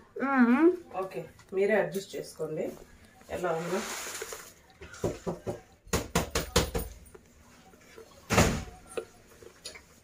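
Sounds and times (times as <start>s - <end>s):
peanuts clattering into a pan: 3.6s - 4.6s.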